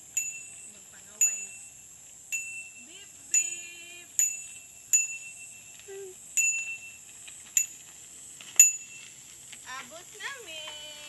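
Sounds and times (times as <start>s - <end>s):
bicycle bell dinging: 0.0s - 7.0s, 7.6s - 7.9s, 8.6s - 9.1s.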